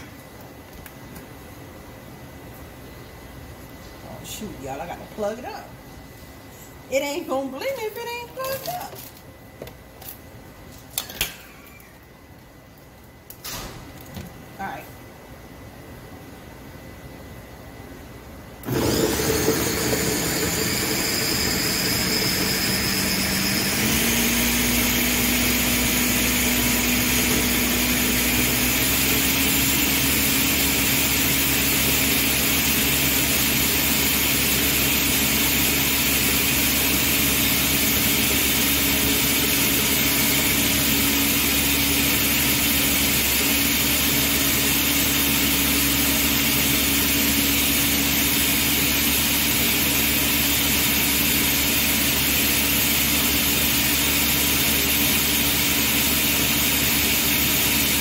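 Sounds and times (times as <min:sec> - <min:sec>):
blender running: 0:18.6 - 0:58.0.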